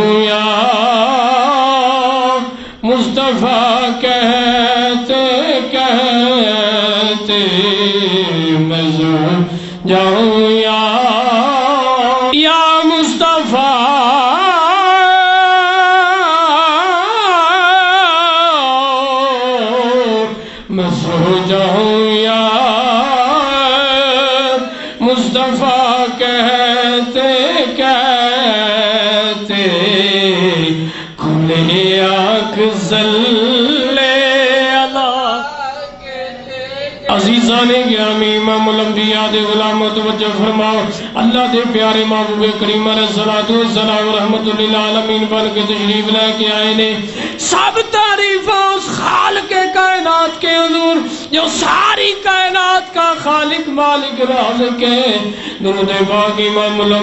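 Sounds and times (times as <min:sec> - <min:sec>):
man chanting: 0:00.0 - 0:57.0
man singing into microphone: 0:00.0 - 0:57.0
singer breath: 0:02.5 - 0:02.9, 0:09.5 - 0:09.9, 0:20.3 - 0:20.7, 0:24.6 - 0:25.0, 0:30.8 - 0:31.2, 0:40.9 - 0:41.2, 0:47.0 - 0:47.5, 0:51.0 - 0:51.4, 0:55.3 - 0:55.7.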